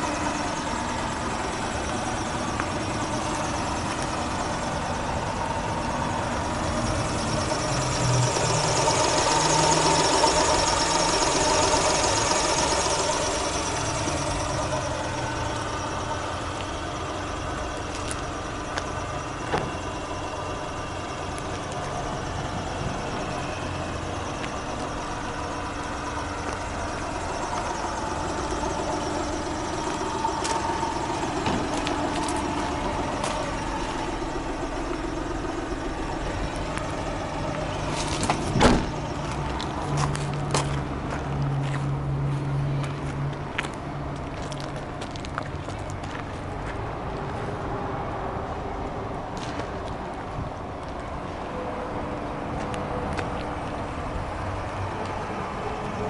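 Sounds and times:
small truck engine idling: 0.0s - 56.0s
sharp thump: 38.3s - 39.0s.

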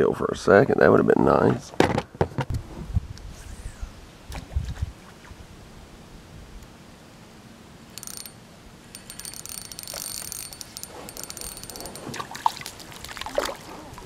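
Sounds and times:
fishing reel clicking: 8.0s - 12.4s.

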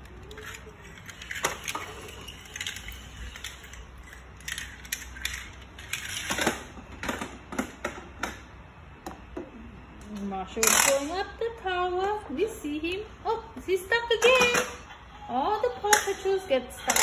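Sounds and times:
plastic toys clicking on tile floor: 0.0s - 8.4s, 15.9s - 17.0s.

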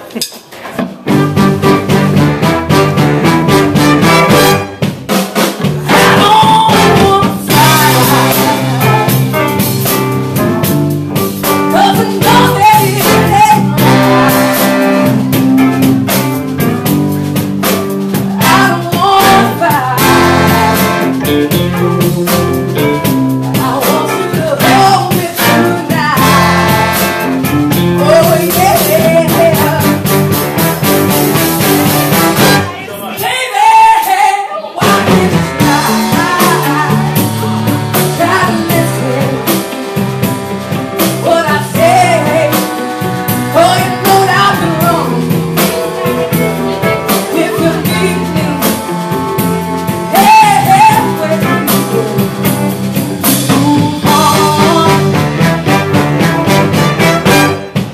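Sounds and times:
soul band playing: 0.0s - 57.9s
saxophone and trombone horns: 1.1s - 5.0s, 5.8s - 16.2s, 18.4s - 22.6s, 24.2s - 32.9s, 34.8s - 57.9s
woman singing lead: 5.8s - 10.4s, 11.4s - 15.4s, 18.0s - 21.7s, 22.7s - 30.3s, 32.3s - 55.8s.

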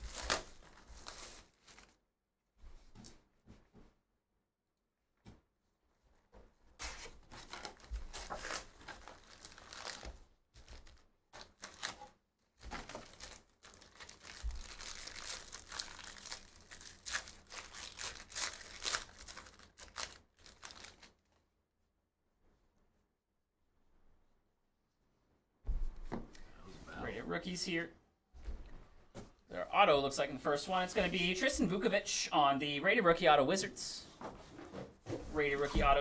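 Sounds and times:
foil wrappers crinkling and tearing: 0.0s - 1.9s, 7.4s - 21.4s.

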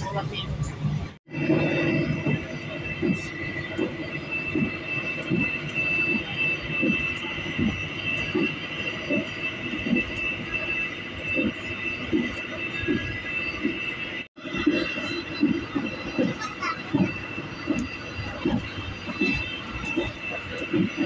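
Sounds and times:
train high whine: 0.0s - 21.0s.

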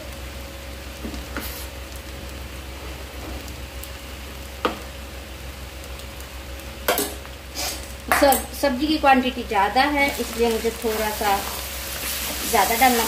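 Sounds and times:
paste sizzling in hot oil: 1.2s - 2.3s, 7.0s - 13.0s.

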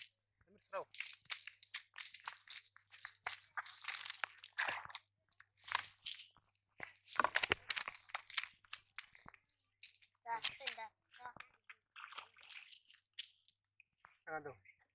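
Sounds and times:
net rustling and crunching: 0.9s - 10.8s.

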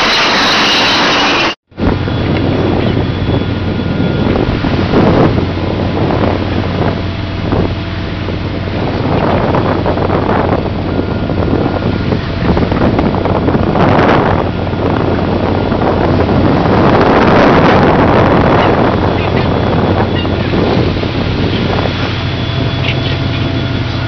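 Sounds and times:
boat engine hum: 0.0s - 24.0s
water churning and splashing: 0.0s - 24.0s
wind buffeting microphone: 1.7s - 24.0s.

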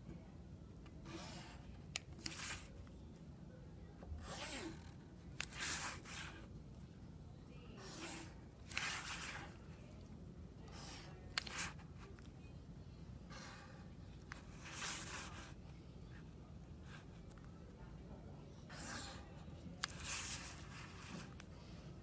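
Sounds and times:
marker scratching on paper: 1.0s - 2.8s, 4.2s - 6.5s, 7.8s - 9.6s, 10.7s - 12.2s, 13.3s - 17.3s, 18.7s - 21.4s.

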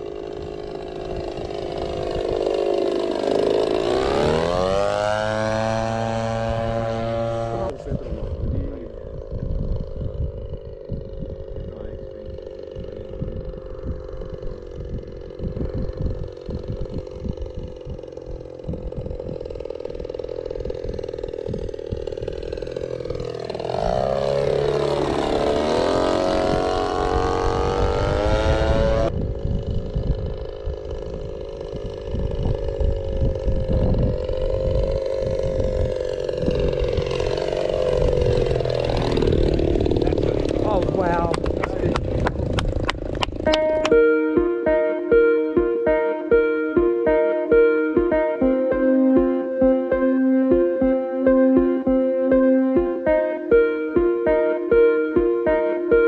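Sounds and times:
wind rumble on microphone: 0.0s - 2.7s, 3.3s - 44.0s
model airplane engine passing: 0.0s - 56.0s.

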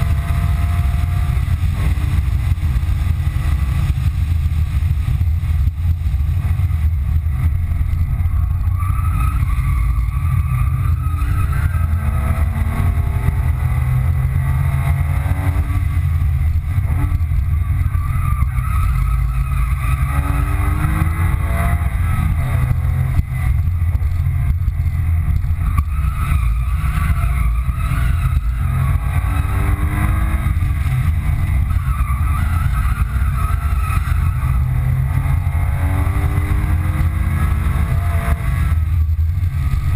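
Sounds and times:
car engine revving: 0.0s - 39.9s
road and wind noise: 0.0s - 39.9s.

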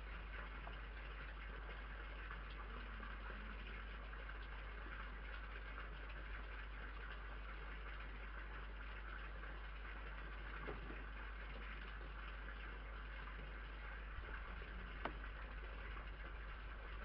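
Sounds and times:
faint tap: 15.0s - 15.2s.

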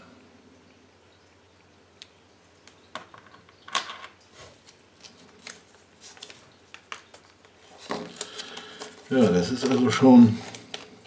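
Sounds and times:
toy packet crinkling and clicking: 5.0s - 11.0s.

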